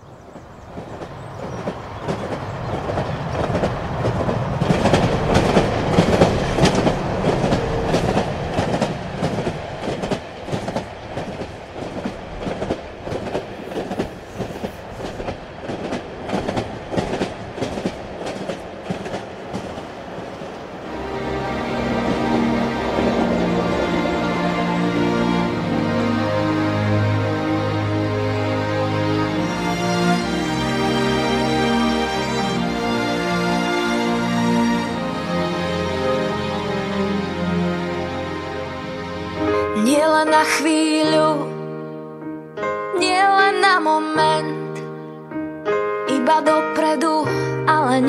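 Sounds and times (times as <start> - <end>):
steady rumbling noise: 1.8 - 28.0
music: 20.9 - 48.0.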